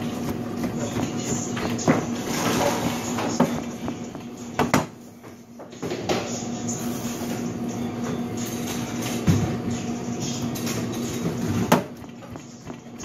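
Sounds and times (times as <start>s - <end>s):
steady low hum: 0.0s - 13.0s
knife chopping on cutting board: 11.7s - 13.0s.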